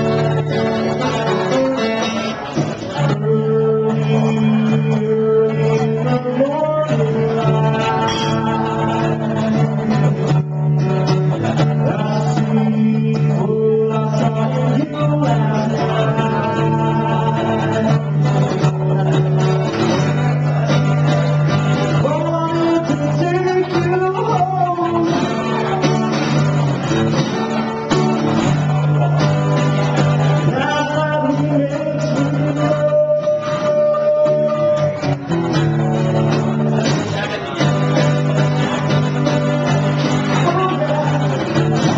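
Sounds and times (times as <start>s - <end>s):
acoustic guitar: 0.0s - 41.9s
man singing: 0.0s - 41.9s.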